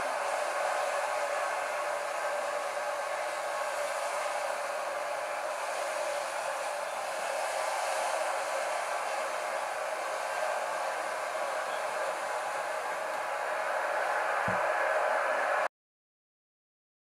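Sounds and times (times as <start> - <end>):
steady hiss: 0.0 - 15.7.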